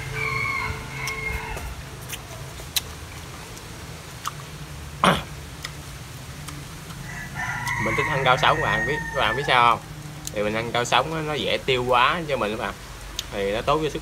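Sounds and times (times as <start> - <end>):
chewing fried chicken: 0.0 - 13.5
mouth clicks: 1.0 - 5.8, 6.4 - 7.0, 13.0 - 13.4.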